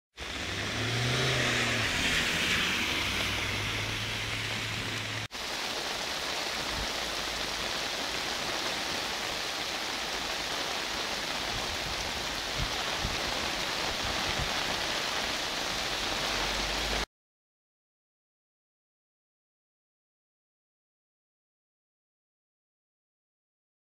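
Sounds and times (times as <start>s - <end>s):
heavy rain on standing water: 0.1s - 17.1s
tyres spraying floodwater: 0.1s - 17.1s
car engine hum: 0.2s - 5.3s.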